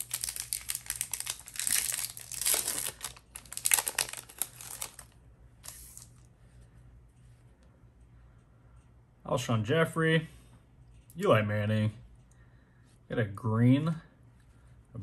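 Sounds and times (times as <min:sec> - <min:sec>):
wrapper crinkling and tearing: 0:00.0 - 0:06.2.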